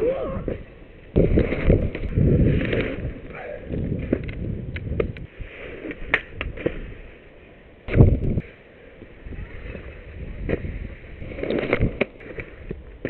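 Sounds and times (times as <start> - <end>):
wind buffeting microphone: 0.0 - 7.1, 7.8 - 13.0
sharp clicks and scrapes: 10.5 - 12.8.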